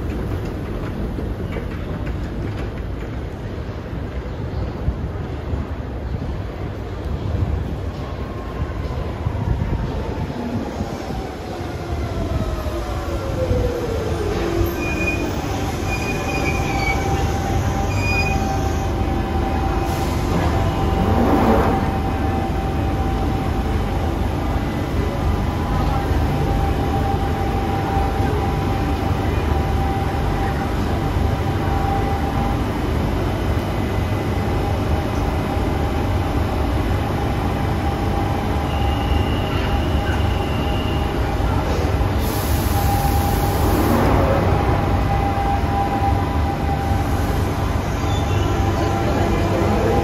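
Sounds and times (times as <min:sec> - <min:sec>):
train rumbling at platform: 0:00.0 - 0:50.0
burst of hiss: 0:42.2 - 0:43.9.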